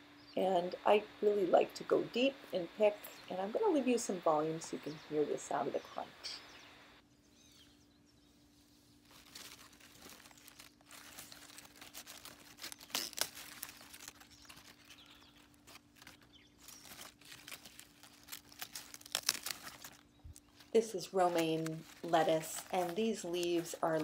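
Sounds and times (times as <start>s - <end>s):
leaves rustling: 8.3s - 24.0s
lettuce leaves snapping: 9.0s - 24.0s.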